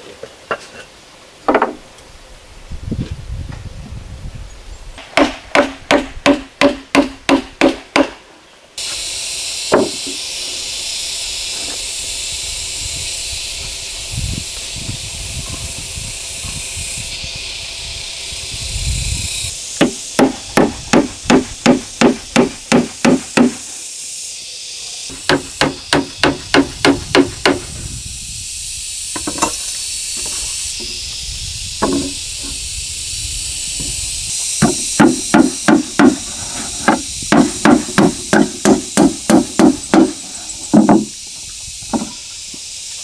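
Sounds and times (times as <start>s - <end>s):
hammer nailing wooden boards: 1.5s - 1.8s, 5.0s - 8.2s, 9.7s - 10.2s, 19.8s - 23.6s, 25.1s - 27.6s, 34.6s - 41.1s.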